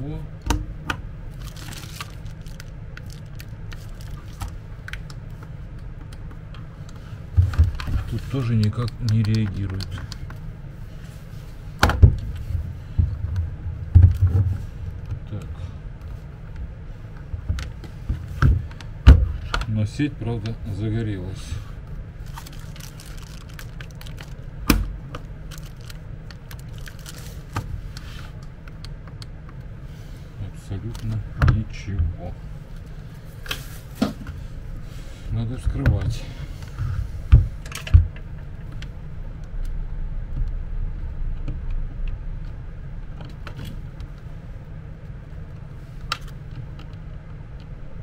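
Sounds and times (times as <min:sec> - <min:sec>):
steady low hum: 0:00.0 - 0:48.0
plastic wrapping crinkling: 0:01.3 - 0:05.3, 0:22.2 - 0:24.5, 0:25.2 - 0:27.6.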